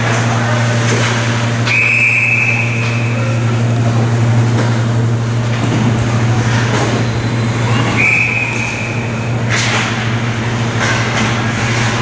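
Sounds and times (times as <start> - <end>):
steady low hum: 0.0 - 12.0
referee's whistle blown: 1.7 - 3.1, 7.9 - 9.0.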